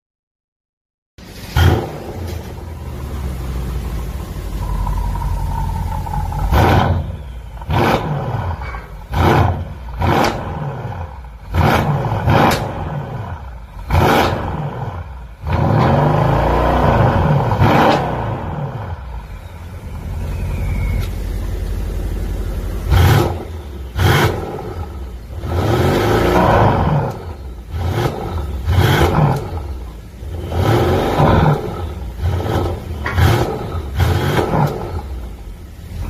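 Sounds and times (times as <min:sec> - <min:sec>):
car engine revving: 0:01.2 - 0:36.0.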